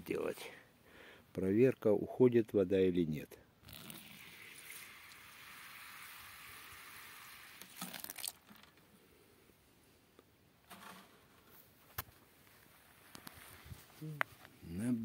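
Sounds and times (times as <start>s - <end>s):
hose water splashing: 3.7s - 8.4s
knocks and rustles: 10.6s - 12.2s.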